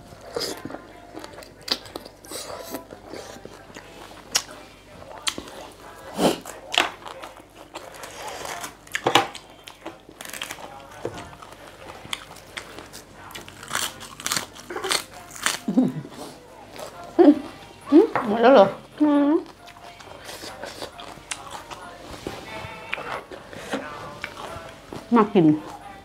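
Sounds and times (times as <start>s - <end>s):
crunchy chewing: 0.0s - 17.6s, 19.4s - 26.0s
cabbage leaves tearing: 7.8s - 9.0s, 10.2s - 11.0s, 12.1s - 15.9s.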